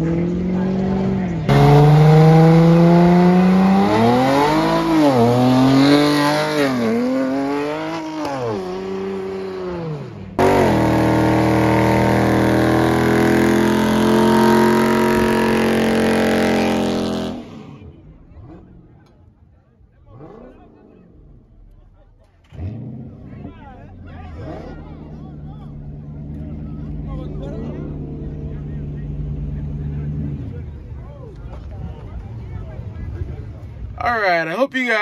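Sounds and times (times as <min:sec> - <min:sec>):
car engine revving: 0:00.0 - 0:33.9
tyres spinning in a burnout: 0:19.8 - 0:33.8.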